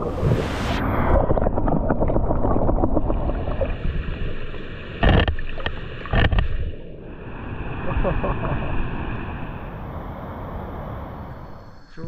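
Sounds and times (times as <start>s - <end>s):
underwater churning rumble: 0.0s - 11.7s
bubbling clicks: 5.0s - 6.7s.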